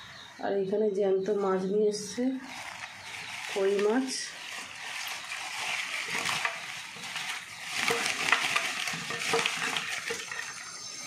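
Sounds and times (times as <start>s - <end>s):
plastic bag rustling: 2.3s - 11.0s.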